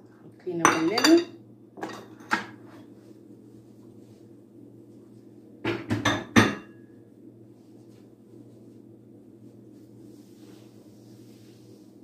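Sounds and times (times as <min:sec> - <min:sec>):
steady low hum: 0:00.0 - 0:12.0
dishes clinking on countertop: 0:00.6 - 0:02.6, 0:05.6 - 0:06.8.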